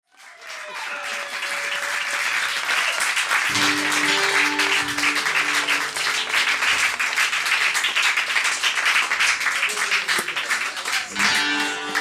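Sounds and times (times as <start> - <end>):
audience applauding: 0.1 - 12.0
acoustic guitar notes: 3.5 - 6.8, 11.2 - 12.0.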